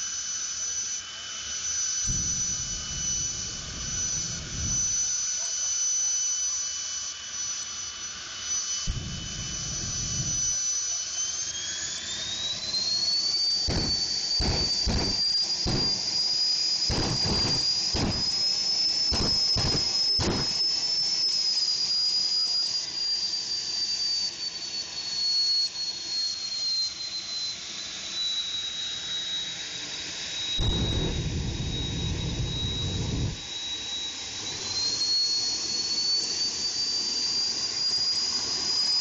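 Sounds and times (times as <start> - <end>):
jet turbine high-pitched whine: 0.0 - 39.0
deep exhaust rumbles: 30.6 - 33.4.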